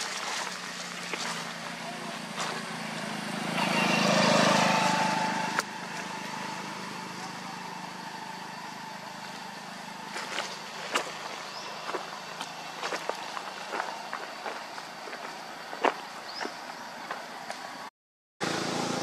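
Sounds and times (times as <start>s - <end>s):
engine humming: 0.0s - 19.0s.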